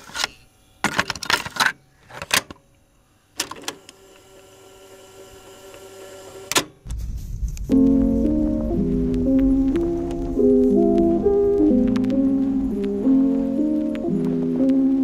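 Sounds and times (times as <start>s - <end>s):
piano music: 7.6s - 15.0s.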